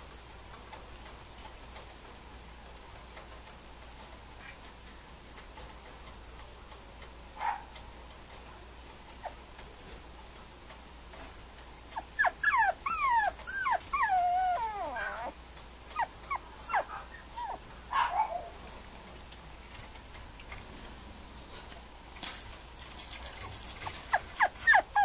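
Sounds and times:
puppy whimpering: 11.9 - 18.6, 23.3 - 25.0.

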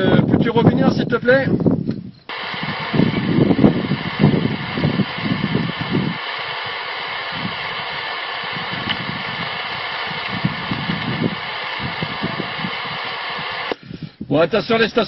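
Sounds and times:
muffled choppy radio bursts: 2.3 - 13.8
radio static hiss: 2.3 - 13.8.

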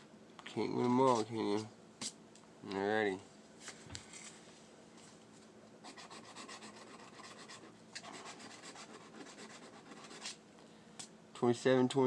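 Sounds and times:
lottery ticket being scratched: 5.8 - 10.4.

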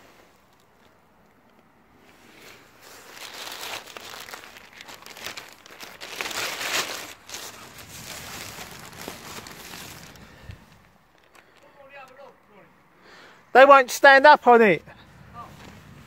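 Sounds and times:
plastic bottles crinkling: 2.6 - 11.7.

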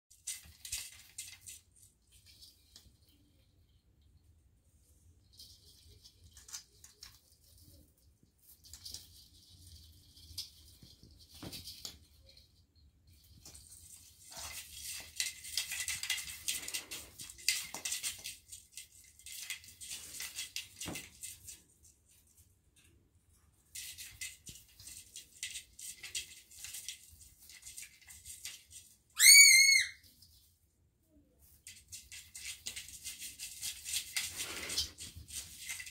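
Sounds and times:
high-pitched squeak: 29.2 - 30.0.

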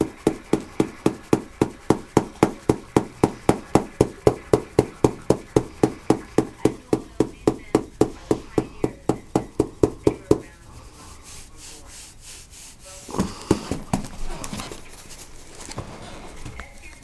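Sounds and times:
foam noodle slapping: 0.0 - 16.0
thumps and rustling: 13.1 - 17.0.

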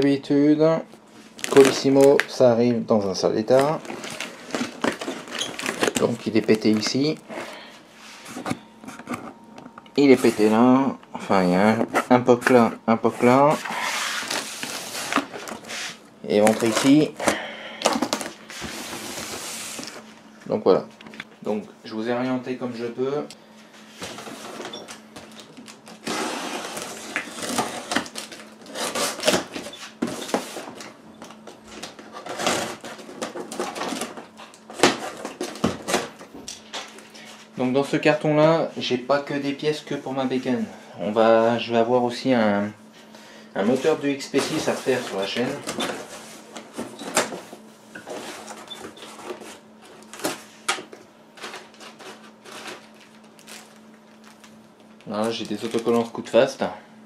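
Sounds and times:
packing paper rustling: 1.0 - 2.5, 3.2 - 9.2, 11.6 - 20.2, 24.0 - 36.2, 43.6 - 56.5
cardboard rustling: 3.5 - 9.4, 43.6 - 50.6, 51.4 - 56.2.

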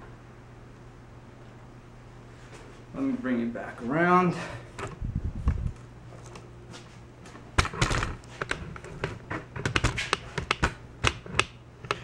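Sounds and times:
tools clicking and tapping: 8.4 - 12.0.

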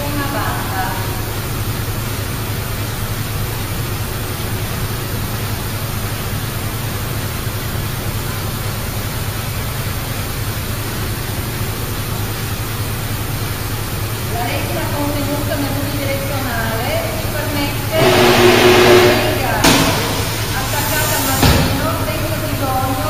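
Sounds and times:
factory machinery humming and hissing: 0.0 - 23.0.

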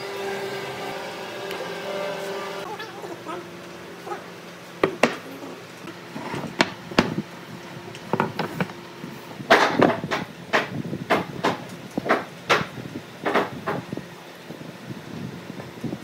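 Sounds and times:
wooden blocks knocking on wood: 4.8 - 5.2
wooden blocks scraping: 6.1 - 6.8, 8.2 - 8.7.

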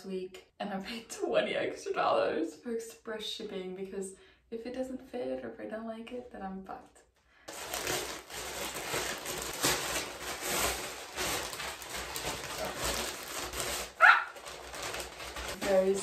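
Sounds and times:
plastic bags rustling: 7.5 - 16.0.

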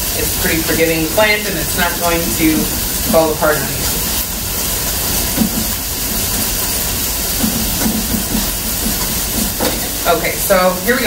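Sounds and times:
steady background hiss: 0.0 - 11.0
speech: 0.1 - 4.0, 9.9 - 11.0.

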